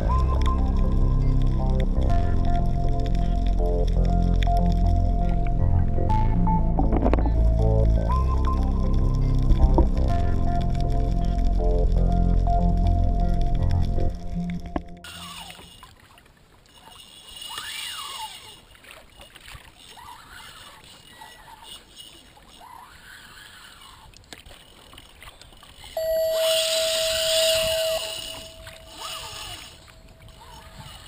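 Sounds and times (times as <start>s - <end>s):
background music: 0.0s - 15.1s
water splashing against a kayak: 15.0s - 26.1s.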